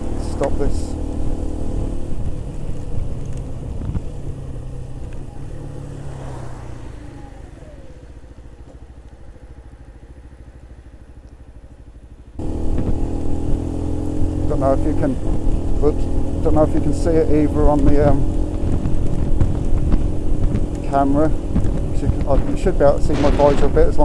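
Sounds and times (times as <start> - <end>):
motorcycle engine idling: 0.0 - 24.0
wind noise: 1.6 - 7.8, 15.0 - 24.0.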